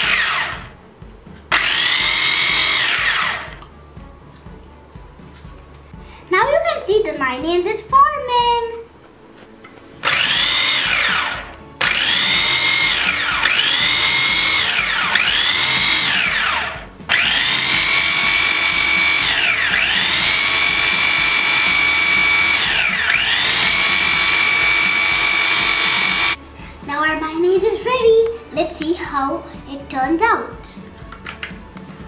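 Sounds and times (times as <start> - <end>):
chopper motor whining: 0.0 - 0.8, 1.5 - 3.7, 10.0 - 26.4.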